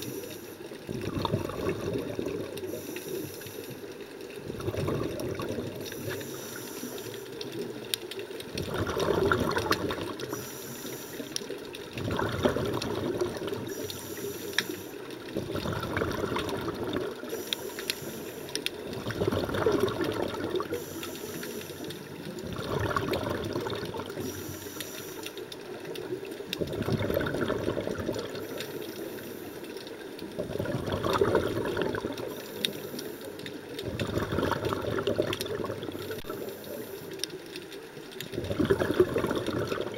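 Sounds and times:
regulator inhalation hiss: 0:00.0 - 0:00.8, 0:02.6 - 0:04.0, 0:05.8 - 0:07.4, 0:10.2 - 0:11.6, 0:13.6 - 0:15.2, 0:17.2 - 0:18.7, 0:20.7 - 0:22.1, 0:24.1 - 0:25.5, 0:28.4 - 0:29.8, 0:32.2 - 0:33.7
exhaled air bubbling: 0:00.0 - 0:39.9.

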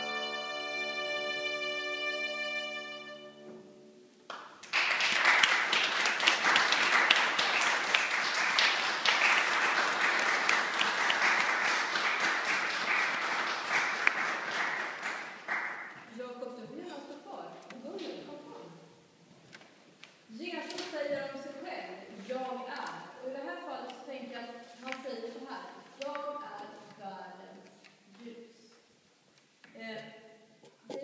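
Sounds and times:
audience clapping: 0:04.3 - 0:16.0.

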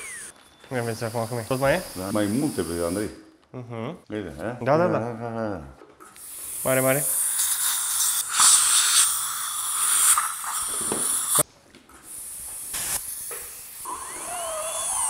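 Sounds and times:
dental handpiece whine: 0:00.0 - 0:03.1, 0:12.7 - 0:15.0
dental suction hose hissing: 0:00.0 - 0:03.3, 0:06.1 - 0:15.0.

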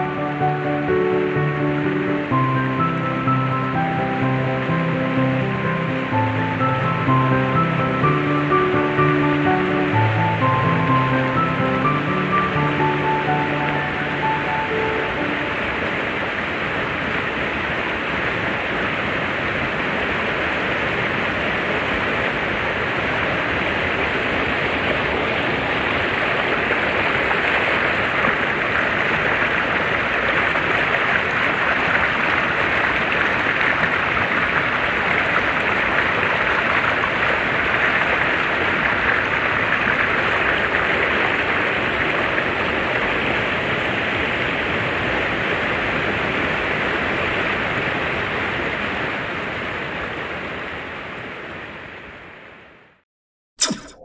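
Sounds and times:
river water rushing: 0:00.0 - 0:50.5.

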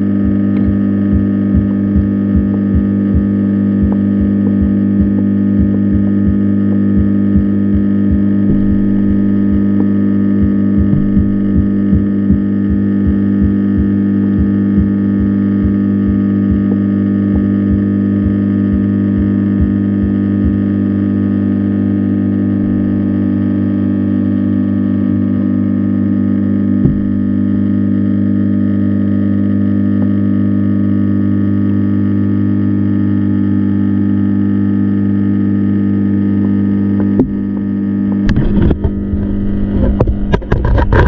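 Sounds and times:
electrical hum underwater: 0:00.0 - 0:41.0
loud knock: 0:08.4 - 0:10.0, 0:10.8 - 0:12.4, 0:26.8 - 0:27.4.

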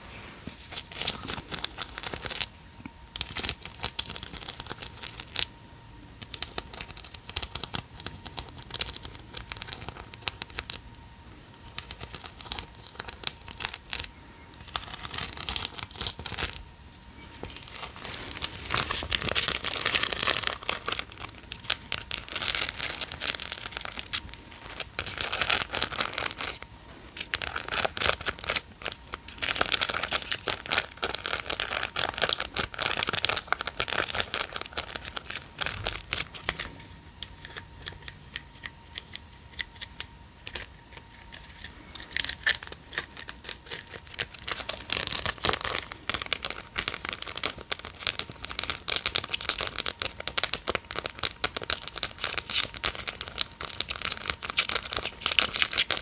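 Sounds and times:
plastic bags crinkling: 0:00.6 - 0:02.5, 0:11.6 - 0:16.6, 0:17.2 - 0:38.2, 0:40.5 - 0:56.0.

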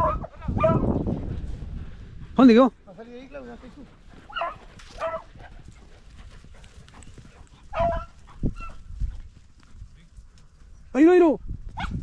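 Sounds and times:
dog barking: 0:00.0 - 0:00.9, 0:04.3 - 0:05.4, 0:07.7 - 0:08.8, 0:11.8 - 0:12.0.

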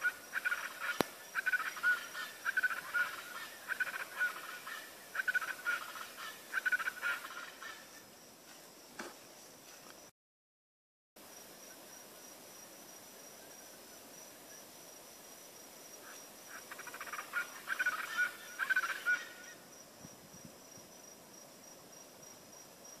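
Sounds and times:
chachalacas calling: 0:00.0 - 0:08.1, 0:16.0 - 0:19.7.

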